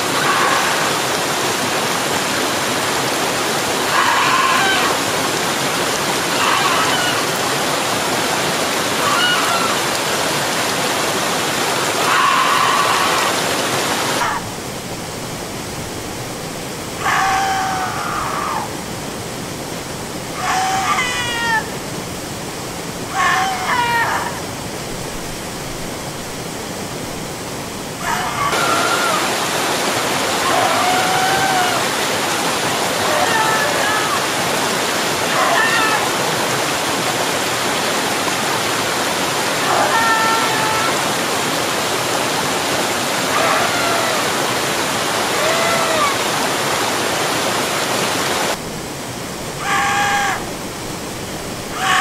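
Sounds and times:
waterfall rushing: 0.0s - 52.0s
person screaming and wailing: 30.4s - 31.9s, 33.0s - 34.4s, 35.3s - 36.2s, 39.6s - 41.1s.

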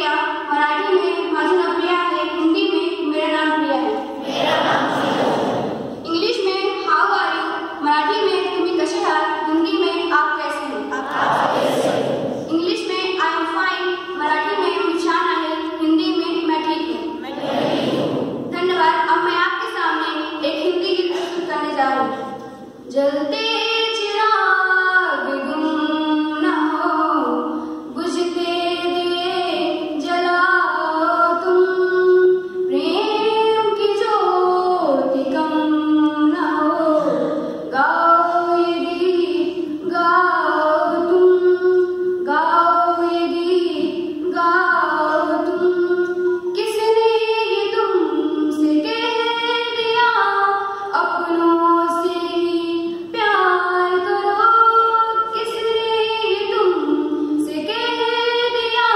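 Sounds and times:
girl singing into a microphone: 0.0s - 4.4s, 5.8s - 11.1s, 12.4s - 17.4s, 18.0s - 58.9s
breaths: 27.5s - 27.9s, 36.9s - 37.7s.

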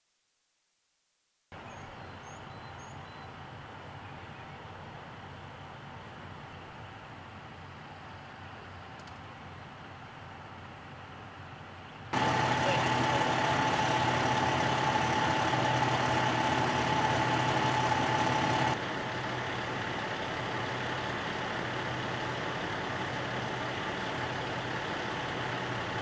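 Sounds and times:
heavy vehicle engine idling: 9.4s - 26.0s.

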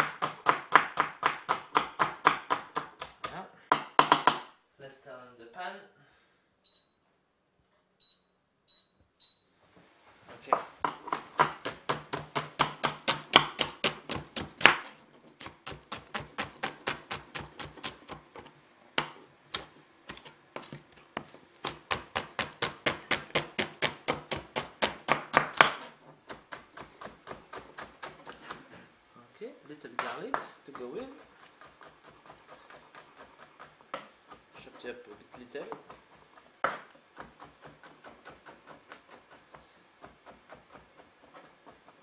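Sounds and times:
knife slicing onion on wooden board: 0.0s - 4.4s, 10.8s - 28.7s, 30.0s - 42.0s
short electronic beeps: 6.6s - 7.0s, 8.0s - 9.6s.

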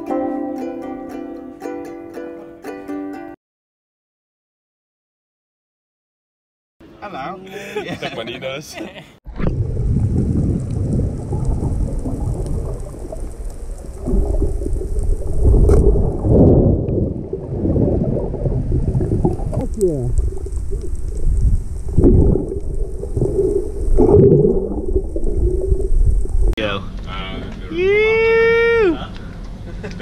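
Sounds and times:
underwater water rumbling: 9.3s - 26.6s.

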